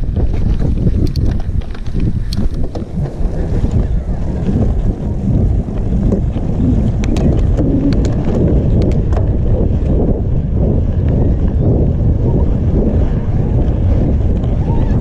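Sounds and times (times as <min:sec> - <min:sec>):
tyres rumbling on gravel: 0:00.0 - 0:10.3
stones and bike rattling: 0:00.0 - 0:15.0
wind buffeting microphone: 0:00.0 - 0:15.0.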